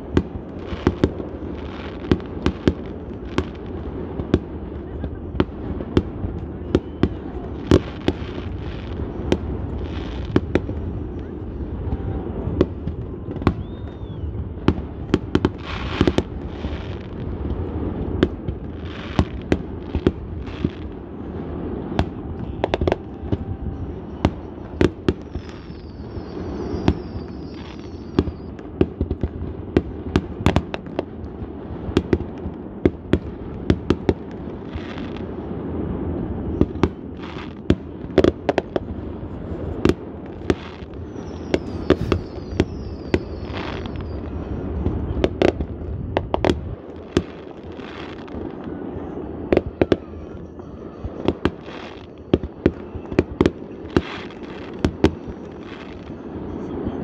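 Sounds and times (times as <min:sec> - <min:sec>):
fireworks crackling: 0:00.0 - 0:57.0
fireworks shells bursting: 0:39.8 - 0:44.4.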